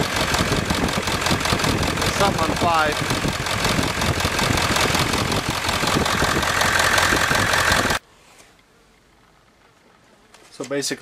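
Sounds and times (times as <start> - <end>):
diesel engine idling with clatter: 0.0 - 8.0.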